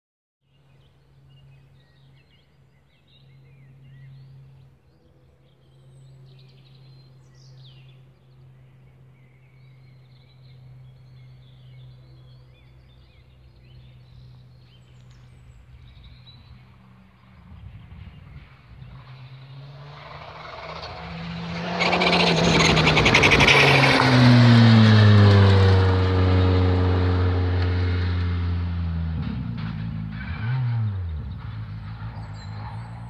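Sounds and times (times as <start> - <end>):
car approaching: 0.7 - 33.0
birds chirping and trilling: 32.1 - 33.0.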